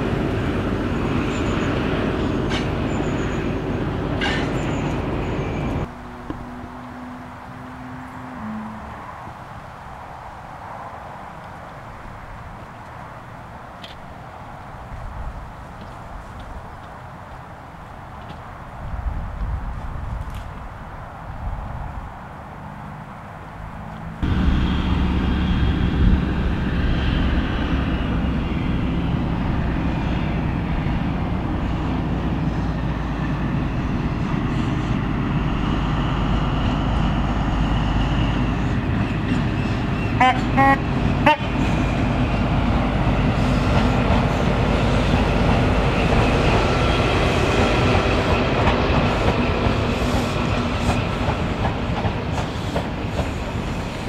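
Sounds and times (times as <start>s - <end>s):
wheels clattering on rails: 0.0s - 8.2s, 31.2s - 54.0s
train diesel engine running: 0.0s - 9.6s, 23.5s - 54.0s
train horn toot: 5.9s - 9.2s, 40.2s - 41.9s.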